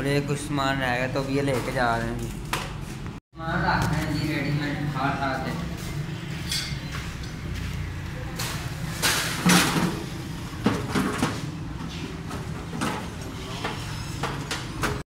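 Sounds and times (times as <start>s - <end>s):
items clattering into metal wheelbarrow: 8.4s - 11.5s.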